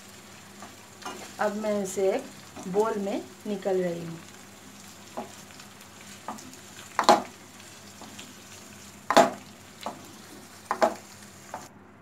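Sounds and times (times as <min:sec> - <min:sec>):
food sizzling in hot oil: 0:00.0 - 0:11.7.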